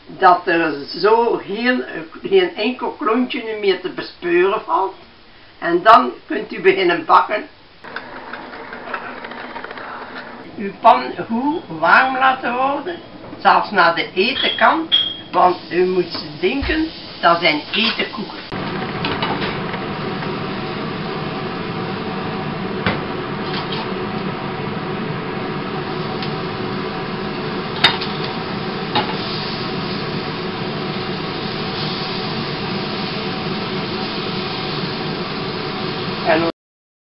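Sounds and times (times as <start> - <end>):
gas stove hissing: 7.8 - 36.5.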